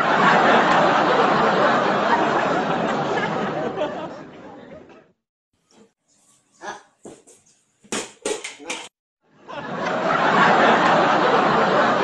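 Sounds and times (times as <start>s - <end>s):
laughter: 0.0s - 5.1s, 9.4s - 12.0s.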